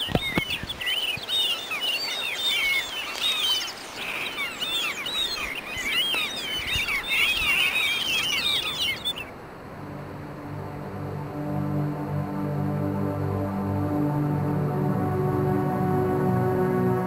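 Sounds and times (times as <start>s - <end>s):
small birds chirping: 0.0s - 9.4s.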